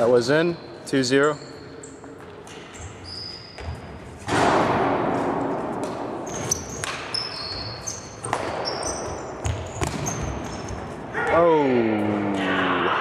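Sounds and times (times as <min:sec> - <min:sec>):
sneaker squeaks: 0:00.0 - 0:04.3, 0:06.2 - 0:11.4.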